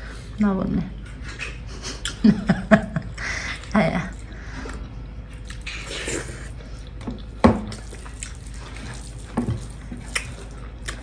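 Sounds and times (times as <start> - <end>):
person chewing wetly: 3.1 - 11.0.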